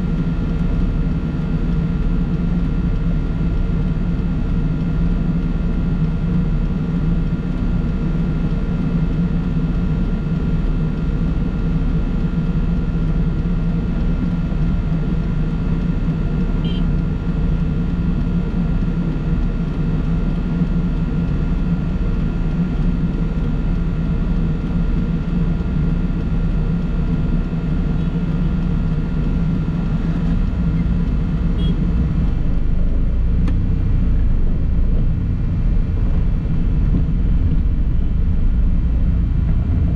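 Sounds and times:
vehicle engine drone: 0:00.0 - 0:39.9
road noise: 0:28.3 - 0:39.9.

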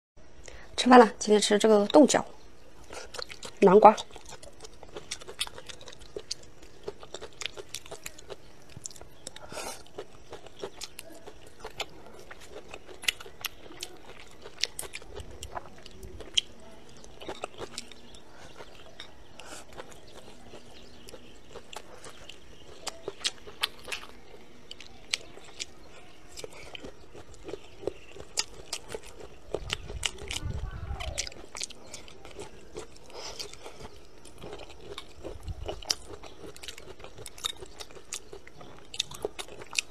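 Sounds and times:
close chewing and biting: 0:02.8 - 0:39.9.

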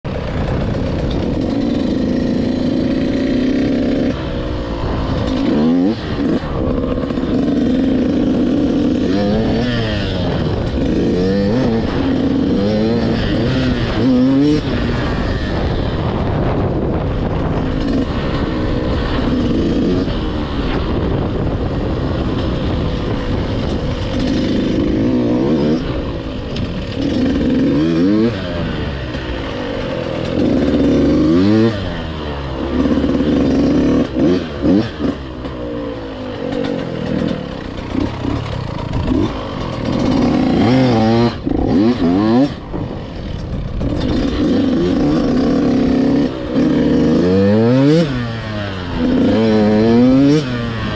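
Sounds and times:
motocross engine revving: 0:00.1 - 0:50.9.

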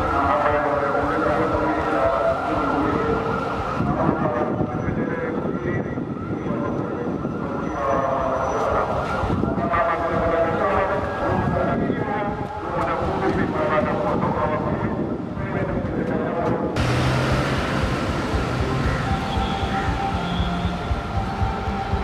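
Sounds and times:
siren: 0:00.0 - 0:12.8, 0:16.8 - 0:22.0
cars passing slowly: 0:16.8 - 0:22.0.

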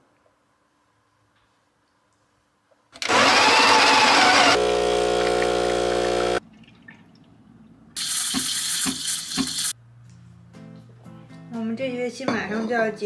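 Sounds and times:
espresso machine pump buzzing: 0:03.0 - 0:06.4.

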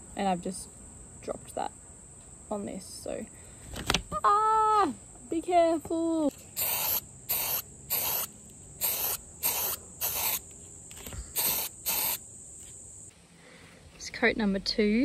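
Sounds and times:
spray can hissing bursts: 0:06.3 - 0:10.5, 0:11.3 - 0:12.2.

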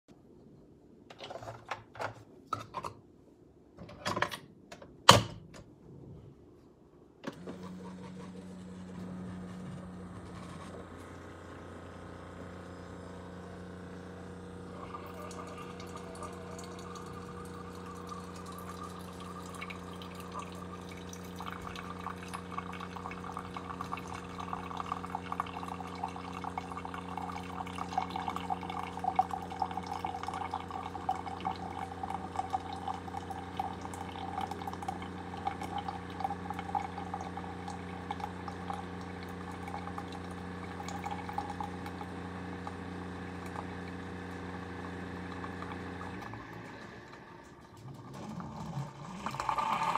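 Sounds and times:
coffee machine humming: 0:07.2 - 0:49.9
coffee trickling into mug: 0:12.5 - 0:49.9.

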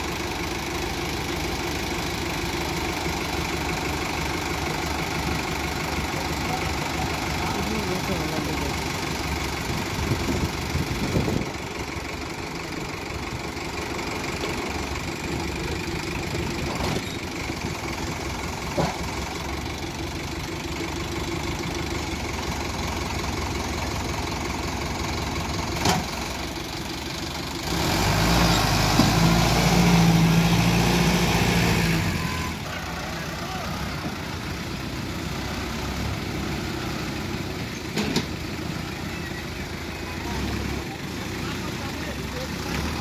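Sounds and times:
tractor diesel engine idling: 0:00.0 - 0:43.0
tractor engine revving: 0:00.0 - 0:43.0
sharp engine knocks: 0:25.8 - 0:26.2.

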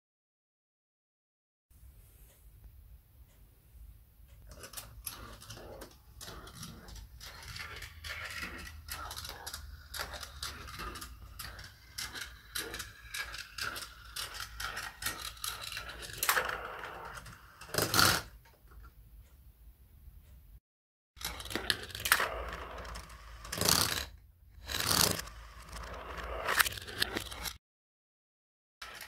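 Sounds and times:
marbles clicking on track: 0:04.4 - 0:18.4, 0:21.2 - 0:27.6
marbles rolling on metal rails: 0:04.5 - 0:18.3, 0:21.2 - 0:27.6
marbles clattering: 0:05.2 - 0:18.2.

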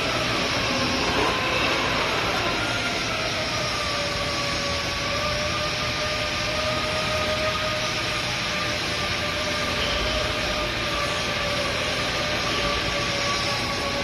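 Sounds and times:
metal lathe running: 0:00.0 - 0:14.0.

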